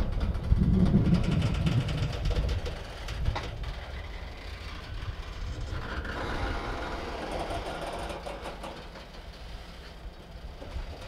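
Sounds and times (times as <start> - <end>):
freight train wheels rumbling: 0.0 - 11.0
wheels clicking over rail joints: 0.0 - 11.0.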